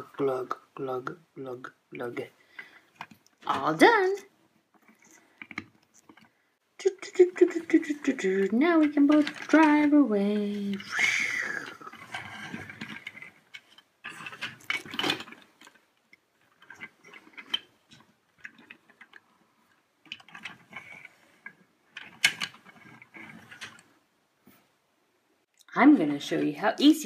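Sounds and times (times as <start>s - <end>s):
plastic toy pieces clicking: 7.0s - 19.2s, 20.0s - 23.8s.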